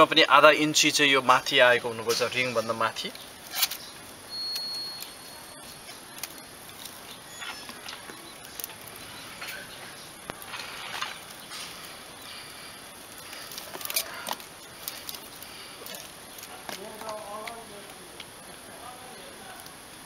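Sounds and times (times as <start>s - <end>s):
plastic cord rustling scrapes: 10.3s - 11.8s.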